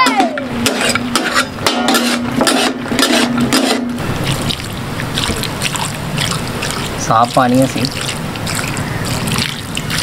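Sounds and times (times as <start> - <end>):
metal spatula scraping steel griddle: 0.0 - 4.0.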